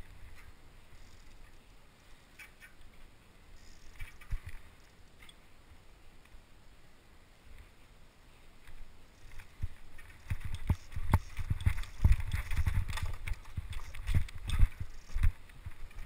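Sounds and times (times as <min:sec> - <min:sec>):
bike clicks and knocks: 0:08.7 - 0:16.0.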